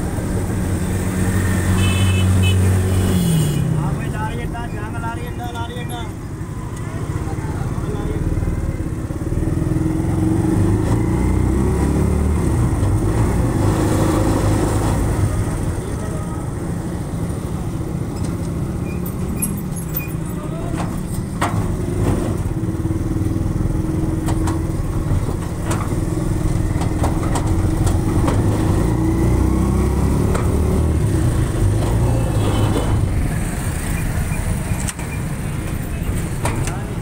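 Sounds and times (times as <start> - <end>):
motor rickshaw engine running: 0.0 - 37.0
clicks and knocks from the ride: 26.8 - 28.5, 36.2 - 36.9.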